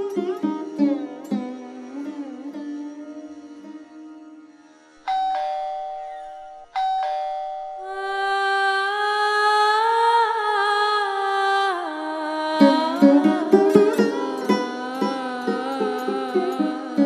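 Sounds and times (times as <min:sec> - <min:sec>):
doorbell chime: 0:05.1 - 0:07.9.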